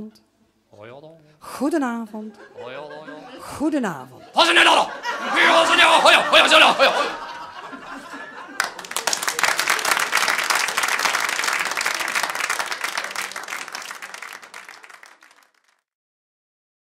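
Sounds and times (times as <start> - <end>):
audience applauding: 8.3 - 15.8.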